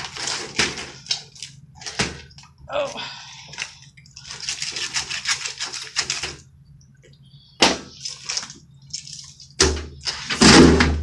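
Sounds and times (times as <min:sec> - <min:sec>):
knife crunching and scraping fish: 0:04.2 - 0:06.3.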